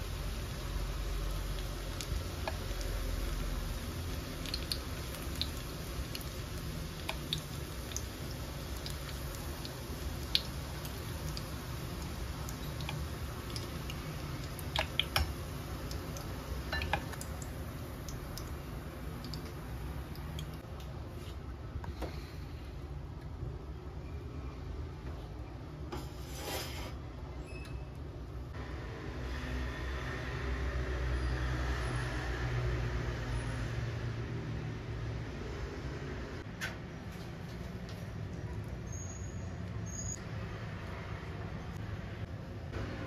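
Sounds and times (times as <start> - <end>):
fritters sizzling in hot oil: 0.0 - 21.3.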